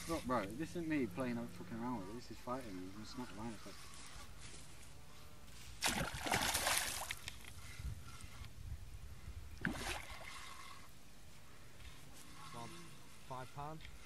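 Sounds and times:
fish splashing in water: 5.8s - 7.3s.

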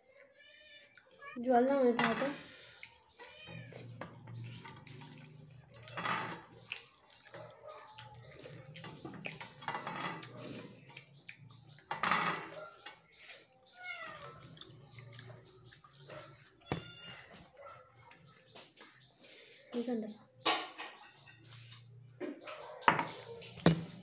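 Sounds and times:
wet chewing and smacking: 0.0s - 1.4s, 2.5s - 20.4s
cat meowing: 0.2s - 1.4s, 3.2s - 4.0s, 13.7s - 14.5s, 16.6s - 17.4s.

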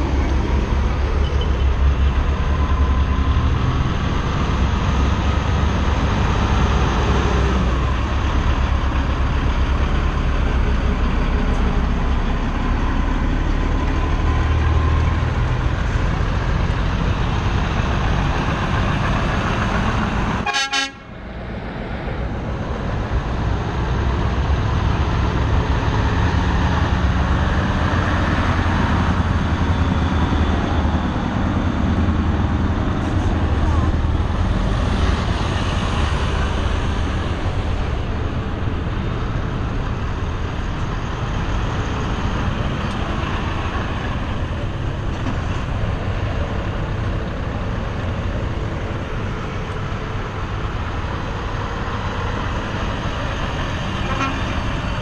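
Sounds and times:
truck diesel engines rumbling: 0.0s - 55.0s
truck horn toots: 20.4s - 21.1s, 54.0s - 54.6s.

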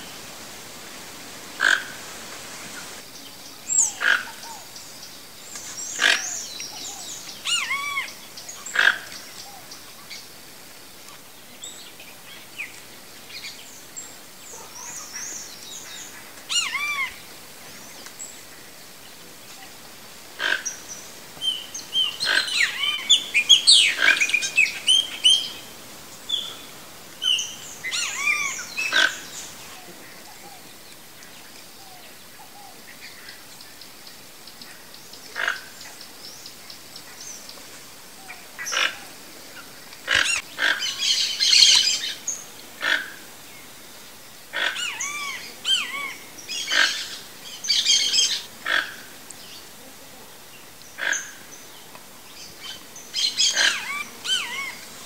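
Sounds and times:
toucan croaking calls: 1.6s - 2.1s, 3.8s - 4.7s, 5.9s - 9.6s, 14.6s - 17.2s, 20.4s - 25.7s, 26.3s - 29.4s, 35.3s - 35.8s, 38.6s - 39.1s, 40.0s - 42.2s, 42.8s - 43.2s, 44.5s - 49.1s, 51.0s - 51.5s, 52.6s - 54.9s
birds chirping: 20.4s - 30.8s, 50.4s - 55.0s.

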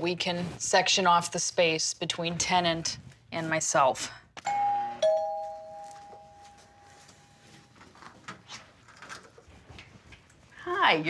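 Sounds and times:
two-note doorbell chime: 4.5s - 7.3s.

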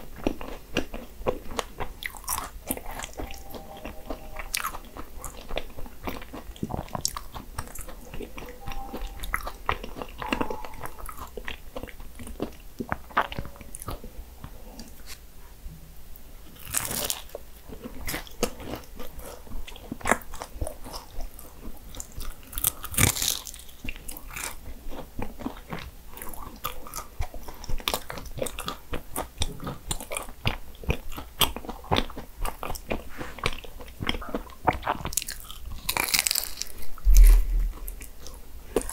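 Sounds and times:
chewing: 0.0s - 15.2s, 16.5s - 38.9s
pastry crunching under bites: 33.4s - 37.3s.

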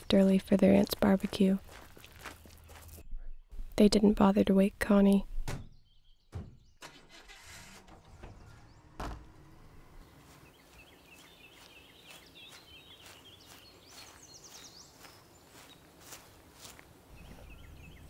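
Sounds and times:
small birds chirping: 0.0s - 6.8s, 8.1s - 18.0s
footsteps on grass: 0.2s - 3.0s, 10.0s - 18.0s
dull thump: 5.4s - 6.7s, 8.0s - 9.6s.

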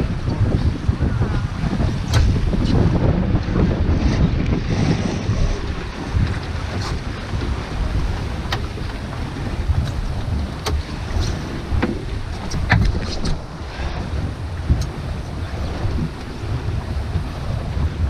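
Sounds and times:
water splashing along a hull: 0.0s - 18.0s
wind buffeting microphone: 0.0s - 18.0s.

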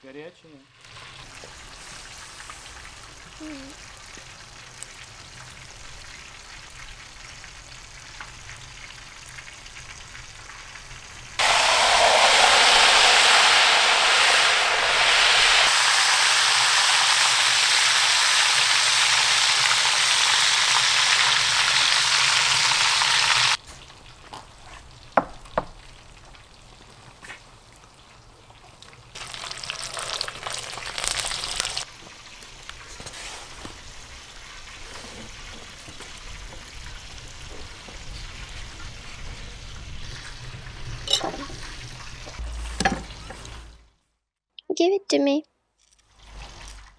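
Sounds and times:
hot oil sizzling loudly: 0.6s - 24.2s, 29.0s - 43.3s, 46.1s - 46.9s.

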